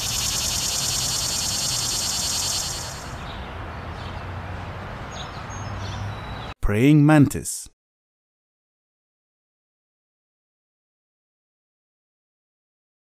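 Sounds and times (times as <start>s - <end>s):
cicada buzzing: 0.0s - 3.2s.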